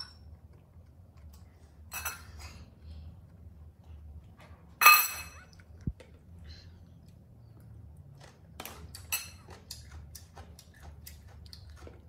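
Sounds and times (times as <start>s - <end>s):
cutlery clinking on ceramic plate: 4.8s - 5.6s.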